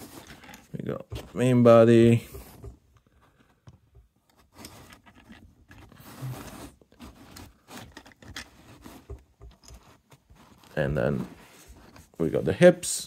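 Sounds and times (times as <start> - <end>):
plastic parts clicking and scraping: 0.0 - 12.2.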